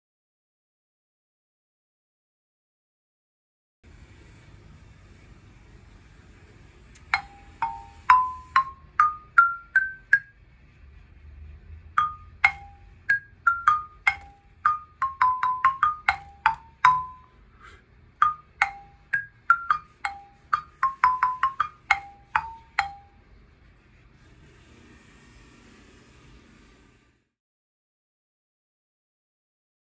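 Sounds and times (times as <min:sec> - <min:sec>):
lithophone struck with mallet: 0:07.1 - 0:10.3, 0:12.0 - 0:17.4, 0:18.2 - 0:23.2.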